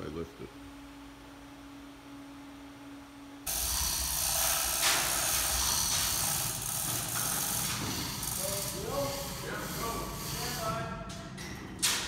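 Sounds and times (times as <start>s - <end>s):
electric hoist running: 3.4s - 12.0s.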